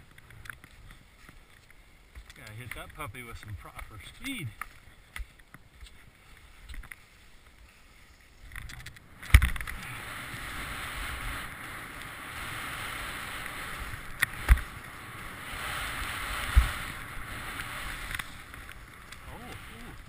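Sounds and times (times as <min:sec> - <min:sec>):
skis knocking on bumps: 0:00.0 - 0:07.5
skis hissing over snow: 0:09.7 - 0:20.0
skis landing on packed snow: 0:15.8 - 0:20.0.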